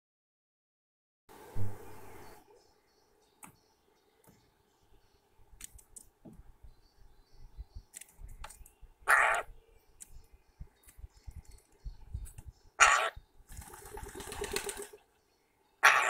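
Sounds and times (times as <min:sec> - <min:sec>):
beak tapping on seeds and wood: 0:05.6 - 0:06.4, 0:07.8 - 0:08.8
bird rasping call: 0:09.0 - 0:09.6, 0:12.8 - 0:13.2, 0:15.8 - 0:16.0.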